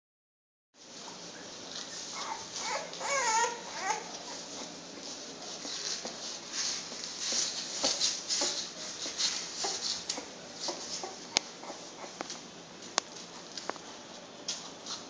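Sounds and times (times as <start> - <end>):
puppies suckling: 1.0 - 12.4
puppies squeaking: 1.2 - 4.8, 9.4 - 12.2.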